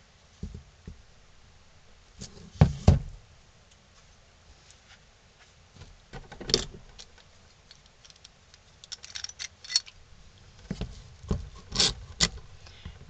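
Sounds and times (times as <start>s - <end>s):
clamp clicking and rattling: 6.4s - 10.0s.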